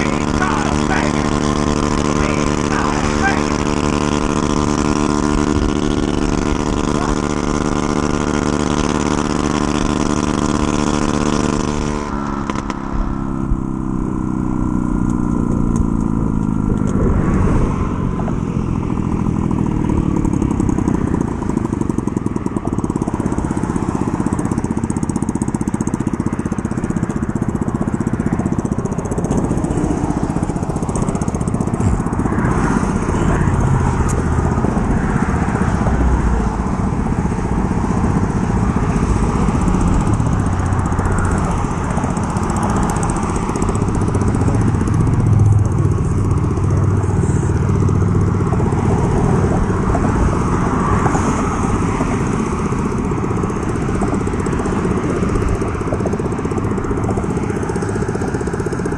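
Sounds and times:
scooter engine running: 0.0s - 58.9s
wind on microphone: 15.8s - 21.6s.

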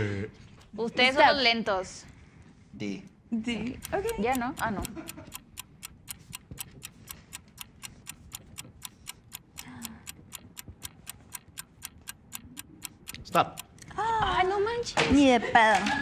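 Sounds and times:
fast even ticking: 3.8s - 13.8s.

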